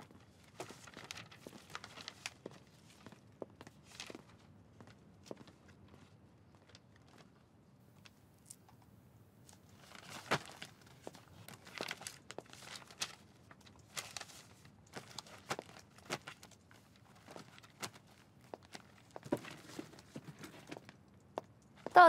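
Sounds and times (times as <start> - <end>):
paper rustling: 0.2 - 3.2, 9.5 - 21.0.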